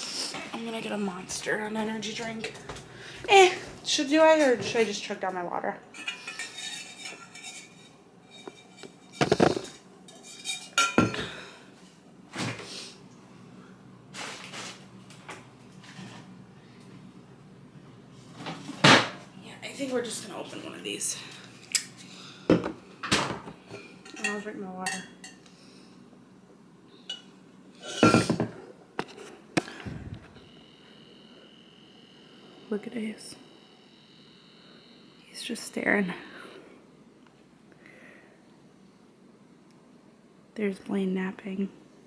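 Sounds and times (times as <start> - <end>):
kitchen clunks and clinks: 6.0 - 11.3, 27.9 - 28.6
drink containers clattering: 8.4 - 11.3.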